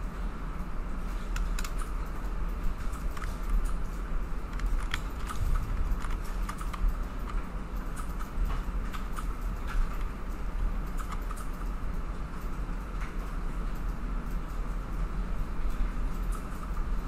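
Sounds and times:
low electrical hum: 0.0 - 17.0
keyboard and mouse clicks: 1.2 - 11.8.

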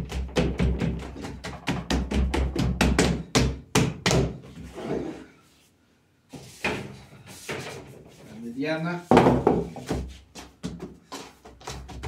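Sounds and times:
hands slapping dough on table: 0.0 - 4.5, 9.1 - 12.0.

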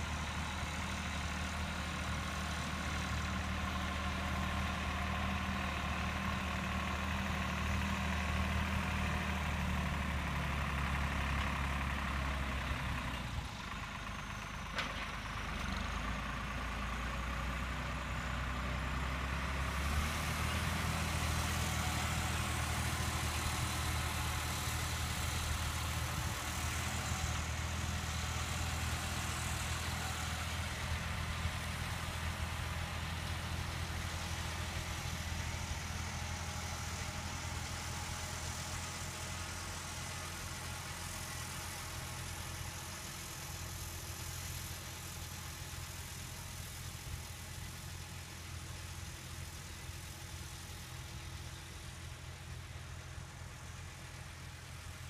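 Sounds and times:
tractor diesel engine running: 0.0 - 55.0.

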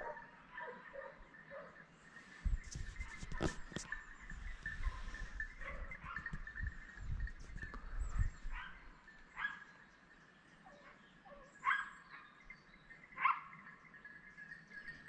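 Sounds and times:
dogs barking: 0.0 - 1.8, 4.8 - 6.6, 8.5 - 9.7, 10.7 - 12.4, 13.2 - 13.7.

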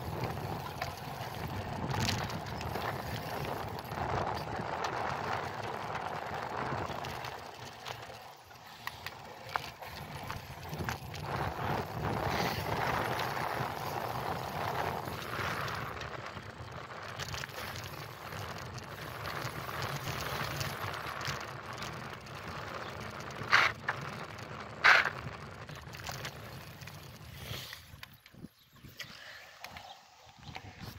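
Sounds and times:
bicycle tyres rolling: 0.0 - 30.9
wind rush: 9.9 - 16.8.

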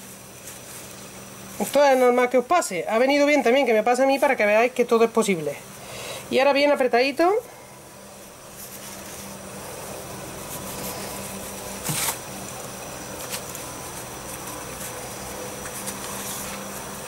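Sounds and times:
paper towel crinkling: 0.0 - 4.5, 8.2 - 17.0
cotton bandage rustling: 8.2 - 17.0.

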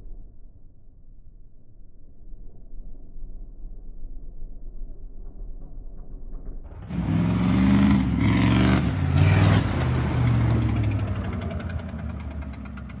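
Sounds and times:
diesel truck engine revving: 6.8 - 13.0.

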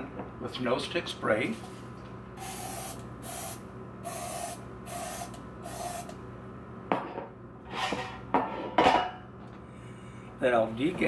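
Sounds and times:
cooking spray hissing: 2.4 - 6.1.

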